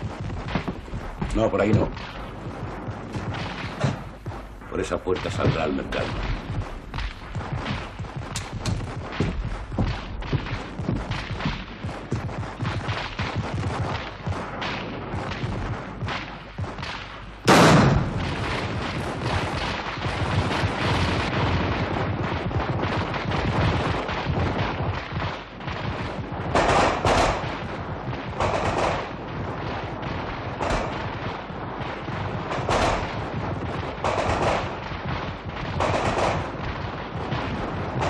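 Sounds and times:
rapid gunfire: 0.0 - 38.0
loud blast: 17.4 - 26.0.

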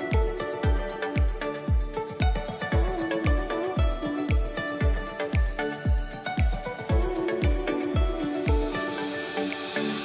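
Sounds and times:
kick drum hits: 0.1 - 8.7.

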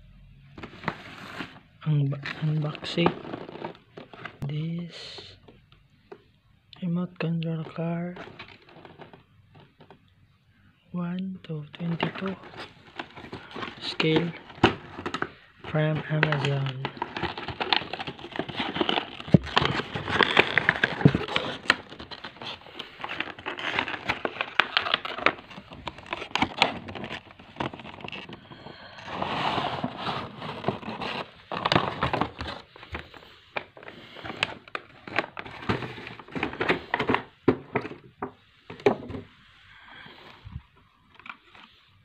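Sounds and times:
plastic packaging crinkling: 0.6 - 4.4, 8.1 - 9.9, 11.8 - 37.9
cardboard box handled: 12.2 - 15.3, 15.9 - 22.4.

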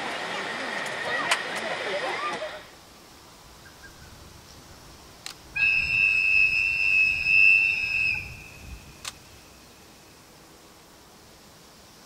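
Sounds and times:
train whistle blast: 5.6 - 8.7.

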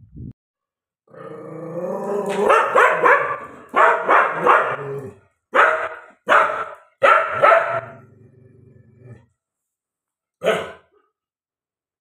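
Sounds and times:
dog barking loudly: 2.4 - 8.0.

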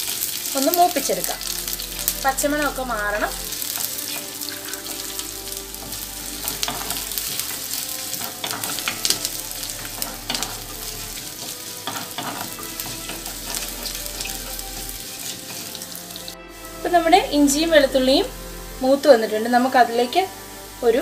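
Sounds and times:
ginger and garlic sizzling in oil: 0.0 - 21.0
wooden spatula scraping clay pot: 1.4 - 16.3.

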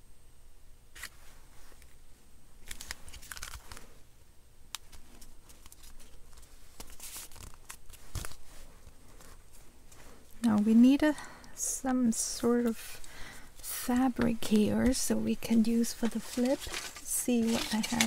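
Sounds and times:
paper and card rustling: 2.6 - 4.0, 4.8 - 10.7, 12.5 - 18.0.

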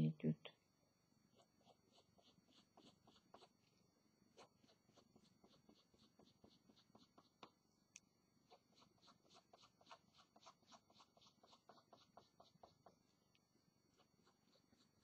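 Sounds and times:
pencil scratching on paper: 1.3 - 3.7, 4.3 - 7.6, 8.5 - 13.2, 13.9 - 15.0.

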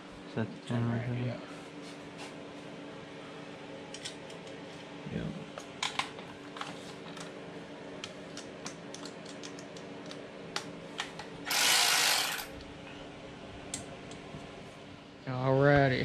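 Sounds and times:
steady background hum: 0.0 - 16.0
loud rasping burst: 11.5 - 12.5
ratchet clicking: 11.5 - 12.5.

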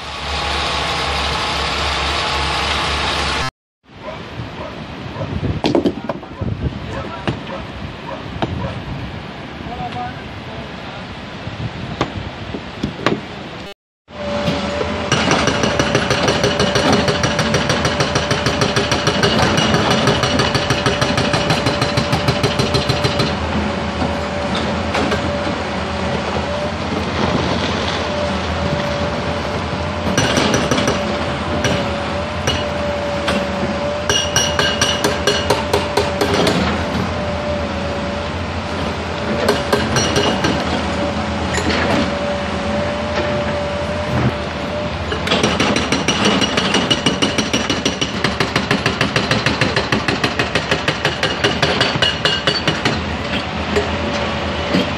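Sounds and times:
excavator engine running: 0.0 - 3.5, 14.1 - 54.9
hydraulic breaker hammering rock: 14.4 - 23.4, 30.0 - 37.0, 39.4 - 40.9, 45.1 - 54.0.

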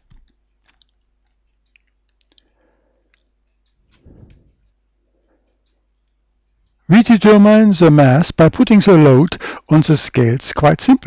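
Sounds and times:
faint small clicks: 0.0 - 6.8.

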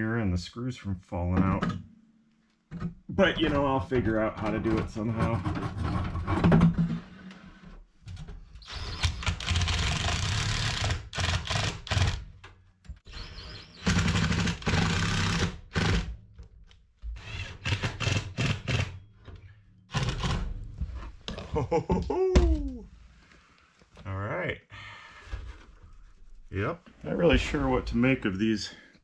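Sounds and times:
cordless drill driving screws: 8.6 - 12.2, 13.1 - 16.1, 17.2 - 18.9.

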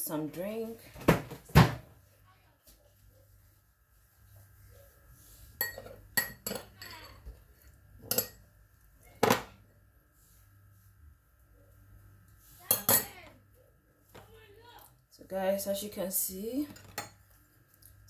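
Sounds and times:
metal spoon clinking ceramic bowl: 5.6 - 7.2, 8.1 - 8.4, 12.7 - 13.1.

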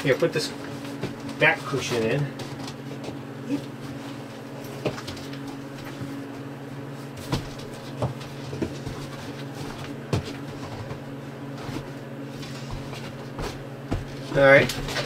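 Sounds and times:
cushion knocks and bumps: 7.1 - 11.1, 12.6 - 15.0.

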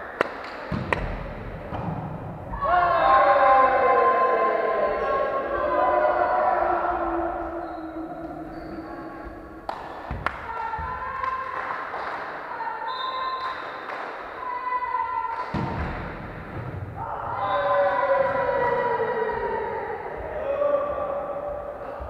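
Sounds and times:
volleyball thumps: 0.7 - 2.4.

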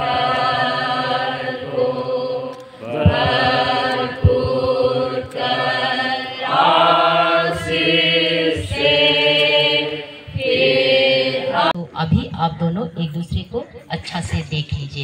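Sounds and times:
women singing a hymn: 0.0 - 11.8.

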